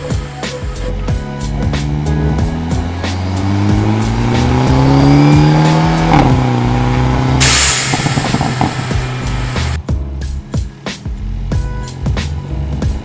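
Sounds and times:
car engine accelerating: 0:00.0 - 0:09.8
exhaust pops and crackles: 0:01.7 - 0:09.8
turbo blow-off valve hiss: 0:07.3 - 0:09.8.

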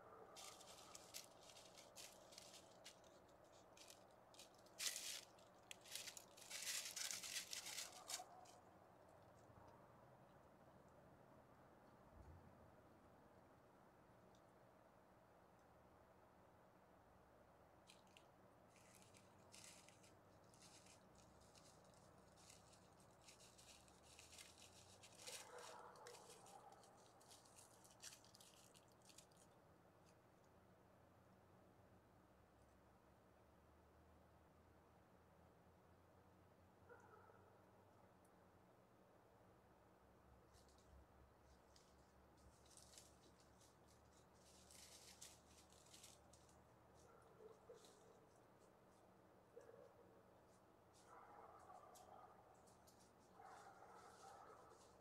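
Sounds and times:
cat footsteps on dry leaves: 0:00.2 - 0:09.5, 0:17.8 - 0:30.4, 0:40.0 - 0:55.0.

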